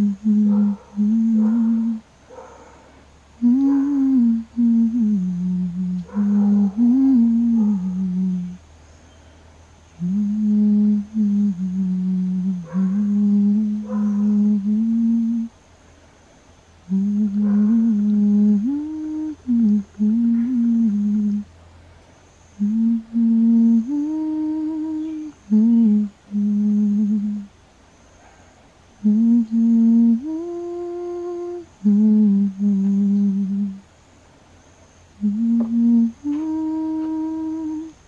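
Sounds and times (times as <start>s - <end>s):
person humming lullaby: 0.0s - 2.1s, 3.4s - 8.6s, 10.0s - 15.6s, 16.8s - 21.5s, 22.6s - 27.5s, 29.0s - 33.8s, 35.2s - 38.0s.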